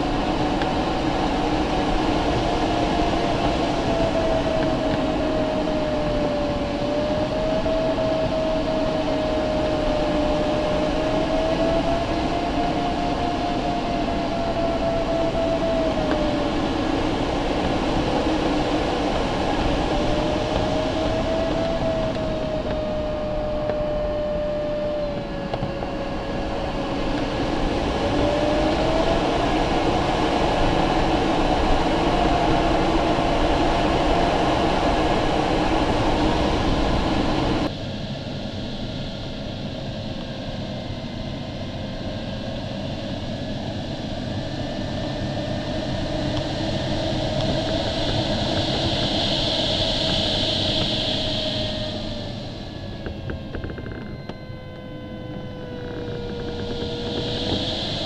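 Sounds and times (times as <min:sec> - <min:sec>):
airflow rushing in cockpit: 0:00.0 - 0:58.0.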